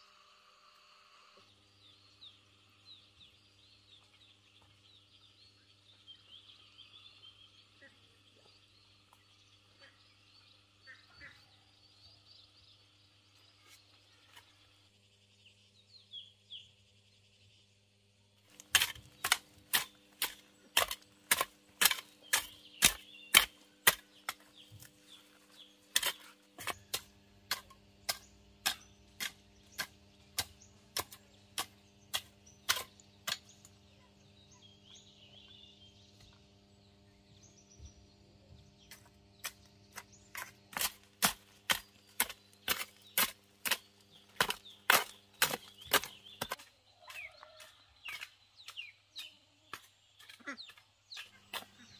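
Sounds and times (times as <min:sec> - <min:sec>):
faint insects: 0:00.0 - 0:18.4
birds: 0:00.0 - 0:51.9.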